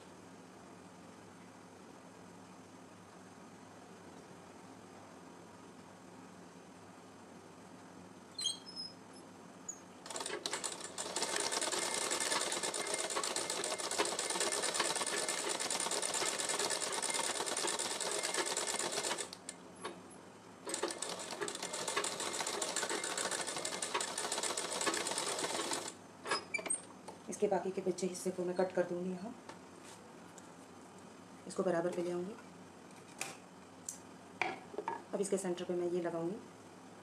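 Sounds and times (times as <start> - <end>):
sewing machine stitching: 10.1 - 19.4, 20.7 - 25.9.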